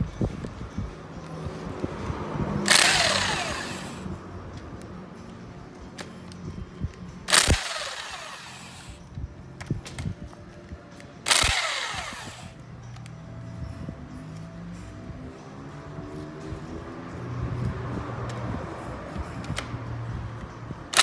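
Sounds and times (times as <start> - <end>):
power wrench whirring: 2.6 - 4.1, 7.3 - 9.0, 11.2 - 12.6.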